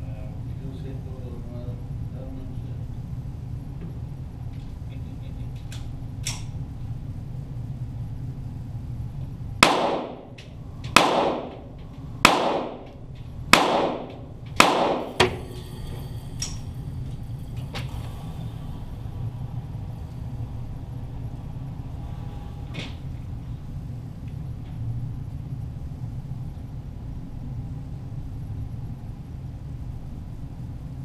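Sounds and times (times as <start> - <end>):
steady low hum: 0.0 - 31.0
pistol shots echoing indoors: 9.6 - 15.4.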